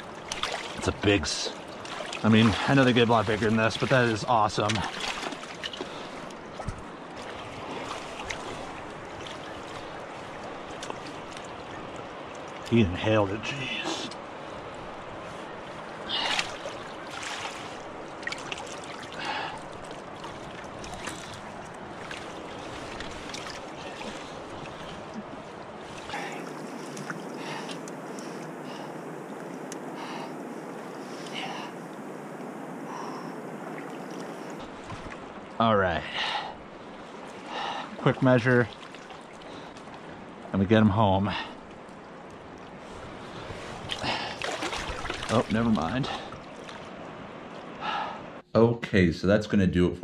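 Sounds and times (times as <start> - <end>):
moving water: 0.0 - 48.4
faint clicks: 29.6 - 29.9
faint ticks: 29.6 - 29.9.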